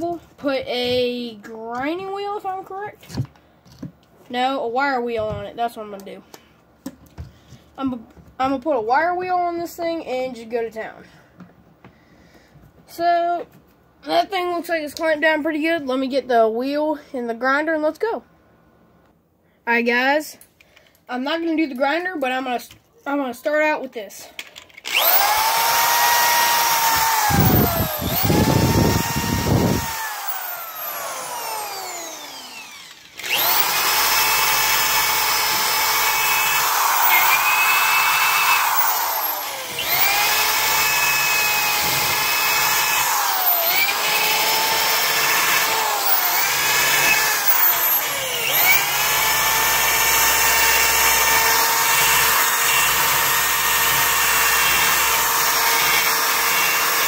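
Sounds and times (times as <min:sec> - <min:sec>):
drill motor whining: 0:24.8 - 0:57.0
drill wire wheel scrubbing rust: 0:24.9 - 0:57.0.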